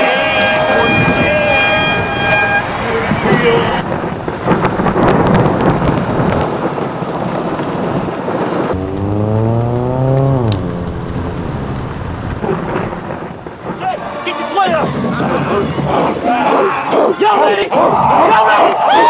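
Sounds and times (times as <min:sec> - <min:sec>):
drawn-out rising pitched sound: 0:00.0 - 0:03.8, 0:08.7 - 0:14.5
heavy rain: 0:00.0 - 0:16.3
thunder rumbling: 0:00.1 - 0:16.2.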